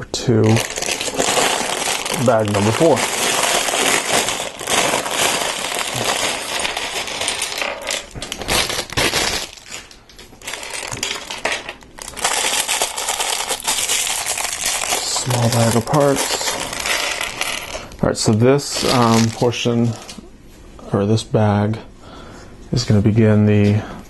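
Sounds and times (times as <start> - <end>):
plastic bag crinkling: 0.4 - 20.2
plastic bricks clattering on table: 0.5 - 17.8.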